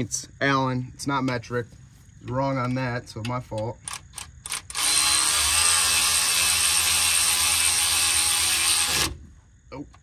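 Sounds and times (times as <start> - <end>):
cordless power driver whirring: 4.5 - 9.2.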